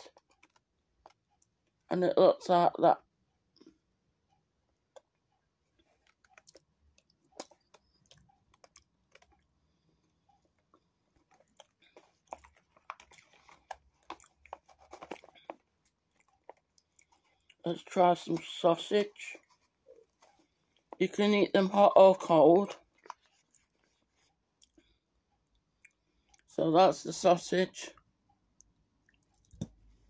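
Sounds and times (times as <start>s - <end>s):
person chewing food: 0.0s - 1.8s, 4.8s - 17.6s, 22.8s - 26.5s, 28.4s - 30.0s.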